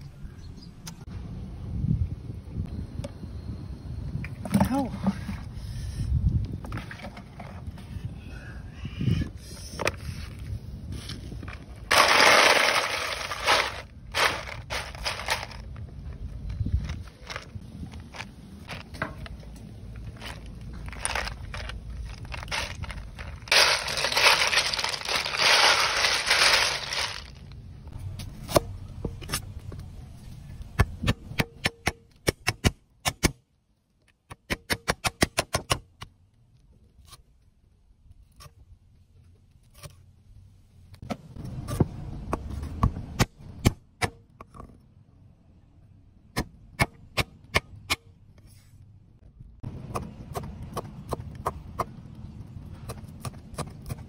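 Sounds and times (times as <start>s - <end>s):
ice cubes crunching and rattling: 11.9s - 15.8s, 20.0s - 27.5s.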